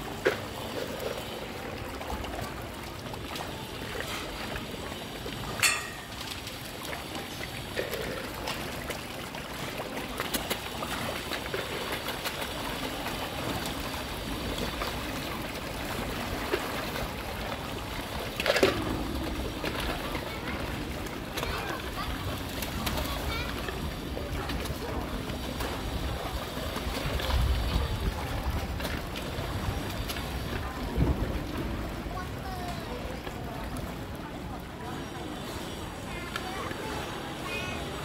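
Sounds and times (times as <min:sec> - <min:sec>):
water splashing and churning: 0:00.0 - 0:38.0.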